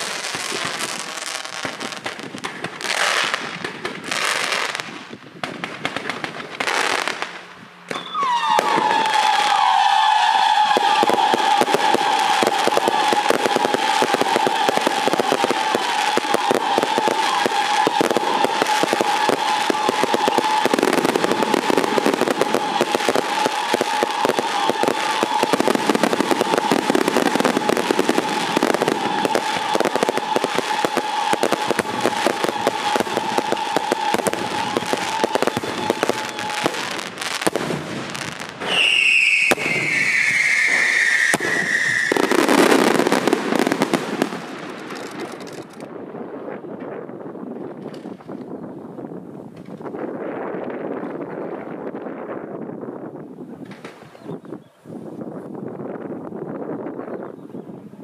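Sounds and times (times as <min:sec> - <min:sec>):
firecrackers crackling: 0:00.0 - 0:47.0
high firework whistle: 0:07.9 - 0:44.4.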